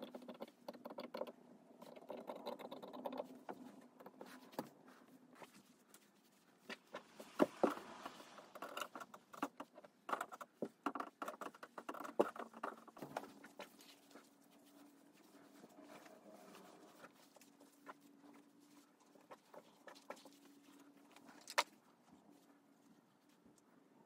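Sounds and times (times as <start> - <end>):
fabric rustling: 3.3 - 9.4, 12.3 - 23.6.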